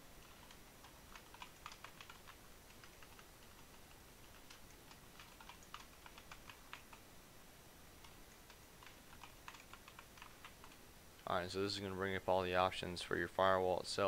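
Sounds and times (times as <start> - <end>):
faint keyboard typing: 0.2 - 7.1, 8.0 - 11.3.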